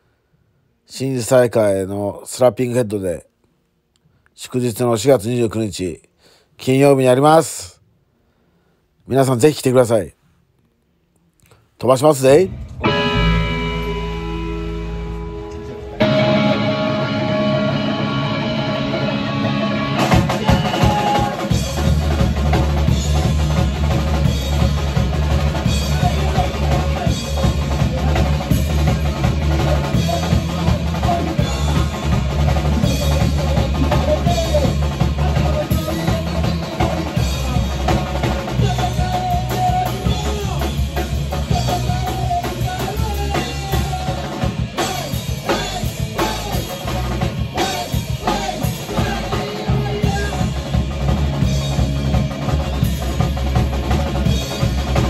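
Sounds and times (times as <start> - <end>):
rock band playing: 12.3 - 55.0
bass drum and snare: 19.9 - 55.0.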